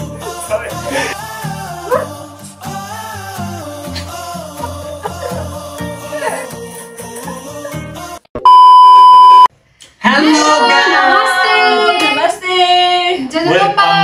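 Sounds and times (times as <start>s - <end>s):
voices calling sing-song greeting: 0.0s - 8.2s, 10.1s - 14.0s
music: 0.0s - 8.3s
electronic beep tone: 8.4s - 9.5s.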